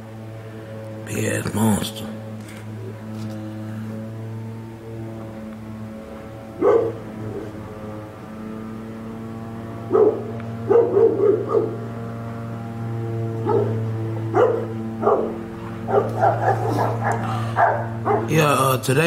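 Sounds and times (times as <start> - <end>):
droning hum: 0.0 - 19.0
dogs barking: 6.5 - 7.9, 9.8 - 12.2, 13.2 - 18.4.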